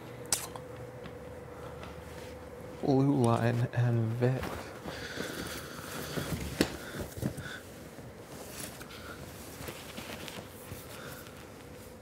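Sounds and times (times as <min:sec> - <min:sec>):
clothes rustling in a bag: 0:03.4 - 0:12.0.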